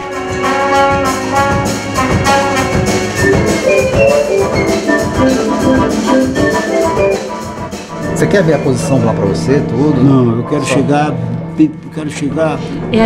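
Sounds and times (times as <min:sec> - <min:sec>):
drum kit: 0:00.0 - 0:09.7
winds and horns melody: 0:00.0 - 0:11.8
hand percussion: 0:00.9 - 0:09.2.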